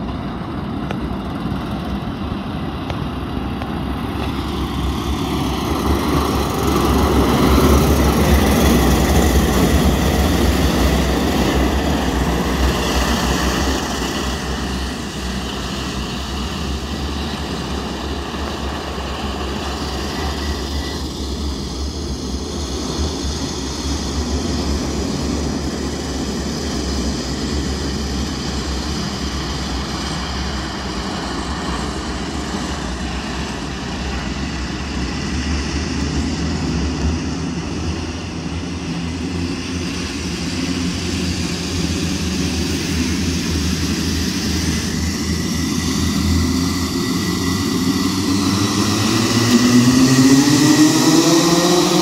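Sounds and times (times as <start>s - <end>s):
go-kart engine running: 33.0s - 52.0s.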